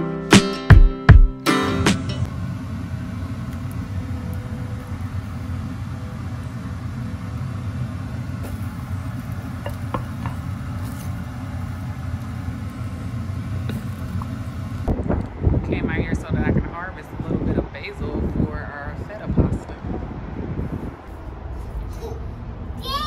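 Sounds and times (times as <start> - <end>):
steady low rumble: 10.5 - 23.0.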